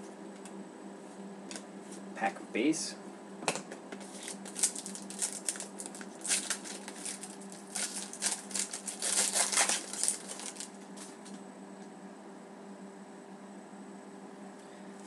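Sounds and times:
wrapper crinkling and tearing: 4.0s - 11.3s.

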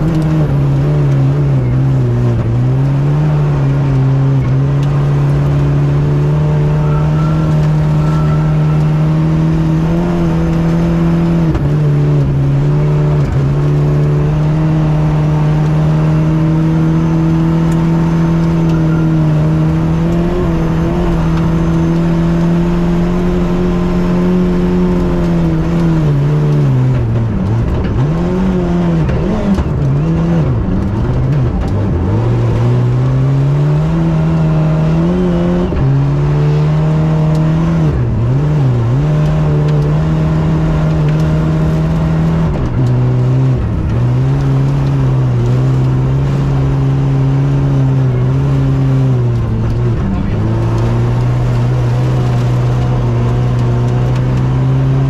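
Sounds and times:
rally car engine at high revs: 0.0s - 55.0s.

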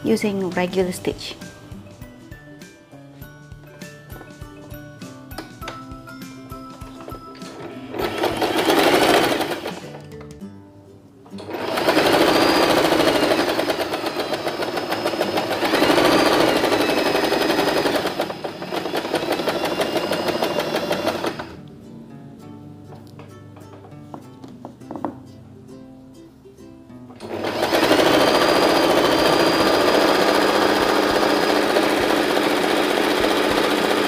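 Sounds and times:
electric sewing machine running: 7.7s - 10.0s, 11.4s - 21.6s, 27.2s - 34.0s.

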